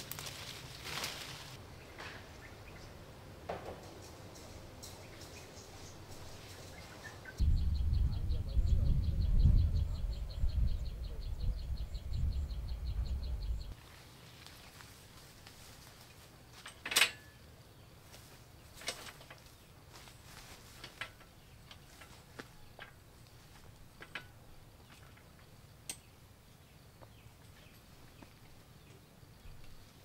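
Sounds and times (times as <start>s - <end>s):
metal stepladder clanking: 16.6s - 17.4s, 20.8s - 23.0s.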